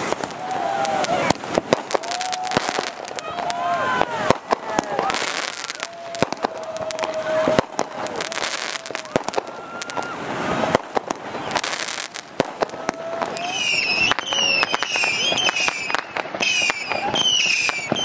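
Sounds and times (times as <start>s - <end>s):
fireworks bangs and crackles: 0.0s - 18.0s.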